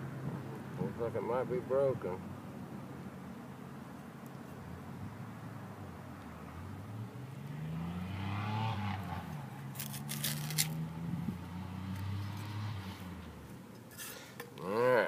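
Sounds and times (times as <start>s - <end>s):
hand trowel scraping stony clay: 9.8s - 10.8s.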